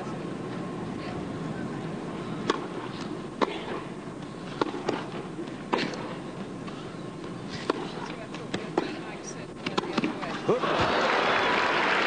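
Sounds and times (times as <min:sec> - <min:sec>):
faint arena hum: 0:00.0 - 0:12.0
tennis racket hitting ball: 0:02.4 - 0:10.4
tennis ball bouncing: 0:02.4 - 0:10.5.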